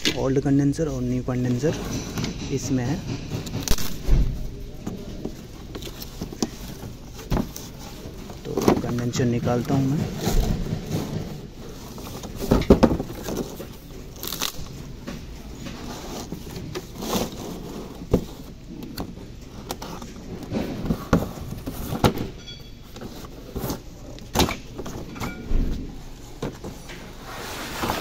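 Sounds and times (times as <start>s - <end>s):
cardboard tearing and rustling: 3.5s - 15.0s, 15.6s - 22.2s.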